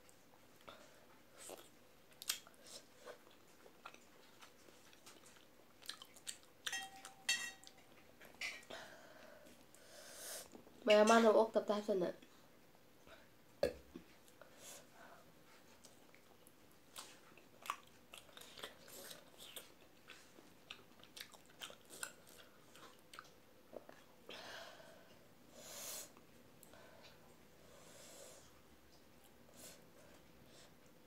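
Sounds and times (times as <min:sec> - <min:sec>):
person chewing: 0:01.3 - 0:08.1, 0:15.7 - 0:24.1.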